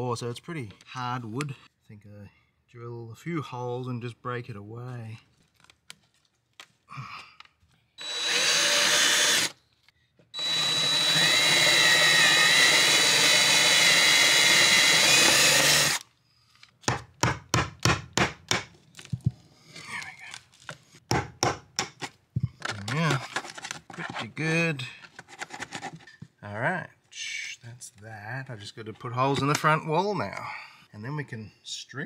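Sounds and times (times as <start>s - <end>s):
power drill boring through wood: 8.0s - 9.6s, 10.4s - 16.1s
sharp knocks and clicks: 21.1s - 22.8s.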